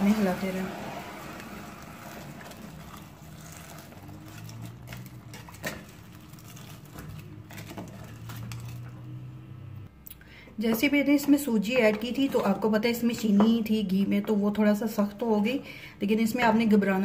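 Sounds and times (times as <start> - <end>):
wooden spoon scraping a pot: 0.1 - 9.1, 11.7 - 13.7.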